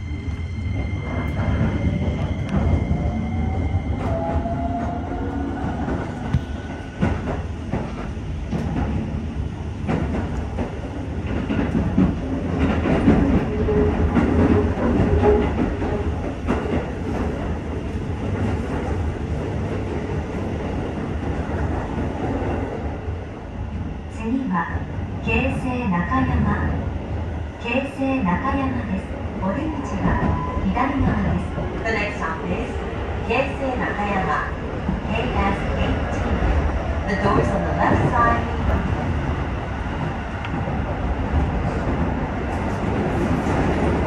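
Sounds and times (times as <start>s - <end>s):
rail joint clicks: 0.2s - 9.2s, 9.8s - 22.8s, 39.9s - 44.0s.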